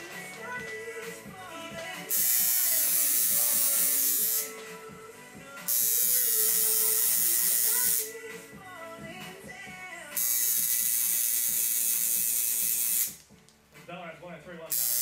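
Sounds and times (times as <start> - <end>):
background music: 0.0 - 15.0
tattoo machine buzzing: 2.1 - 4.6, 5.7 - 8.1, 10.2 - 13.2, 14.7 - 15.0.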